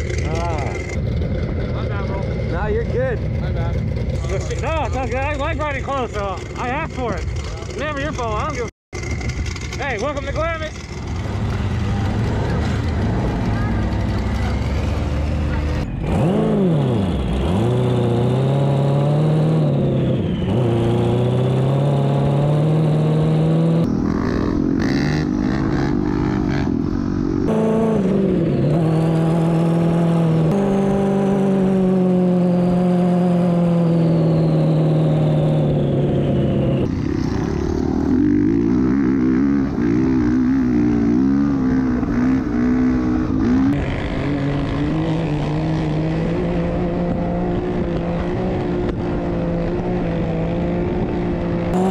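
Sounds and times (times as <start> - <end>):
high engine whine: 0.0 - 51.9
utv and dirt bike engines revving: 0.0 - 51.9.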